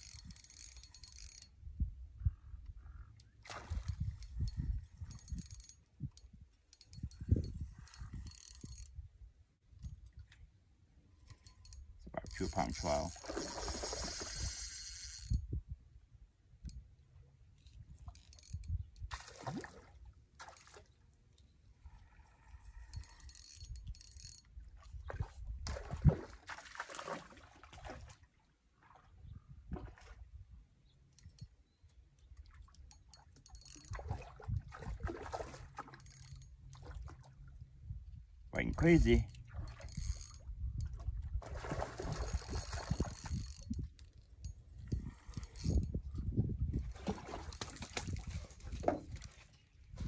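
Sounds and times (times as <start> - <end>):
fishing reel whirring and ticking: 0.0 - 1.6, 4.0 - 9.0, 11.2 - 15.5, 18.1 - 18.9, 22.0 - 24.6, 32.8 - 34.0, 36.0 - 36.6, 38.7 - 40.9, 42.0 - 46.0
wind rumble on microphone: 1.4 - 10.4, 13.6 - 16.9, 17.6 - 19.2, 21.8 - 26.3, 29.1 - 30.7, 33.8 - 35.6, 36.8 - 50.0
wind thumps on microphone: 44.8 - 49.2.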